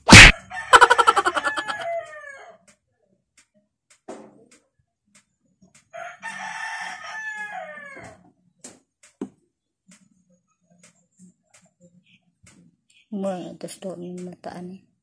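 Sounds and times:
rooster crowing: 0.1s - 2.6s, 5.9s - 8.2s
faint clicks and taps: 2.6s - 6.0s, 8.0s - 14.6s.

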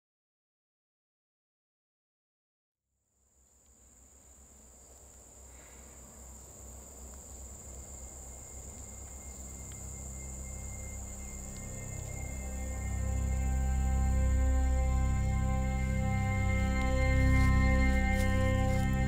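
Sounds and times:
crickets chirping: 3.2s - 19.0s
faint sustained musical tones: 4.0s - 19.0s
low drone: 5.5s - 19.0s.

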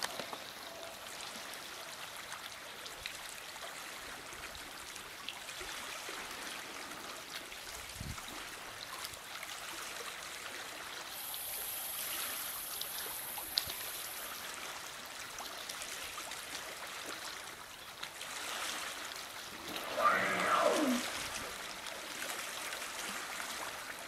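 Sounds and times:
loud sound falling in pitch: 19.6s - 21.6s.

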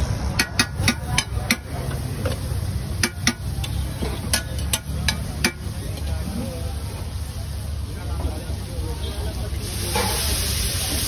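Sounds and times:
low street rumble: 0.0s - 11.0s
metal spatula clinking on griddle: 2.4s - 6.1s.

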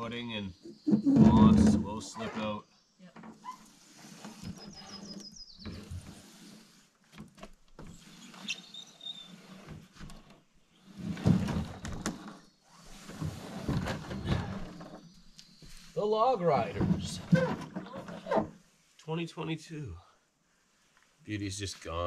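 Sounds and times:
canoe hull scraping over logs: 0.8s - 2.4s, 3.4s - 18.6s.

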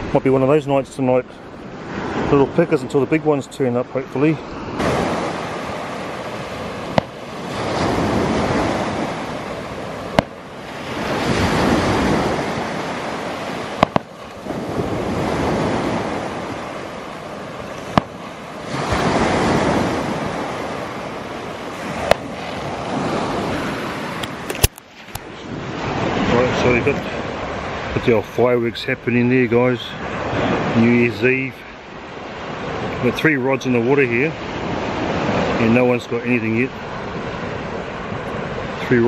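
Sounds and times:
surf washing onto beach: 0.0s - 39.0s
sharp wave crack: 4.7s - 25.3s.

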